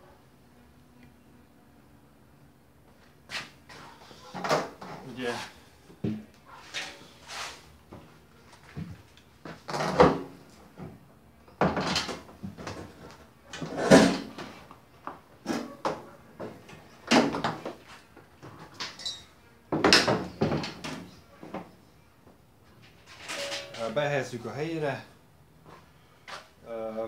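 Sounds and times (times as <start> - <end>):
machine parts clunking and scraping: 22.8 - 24.0.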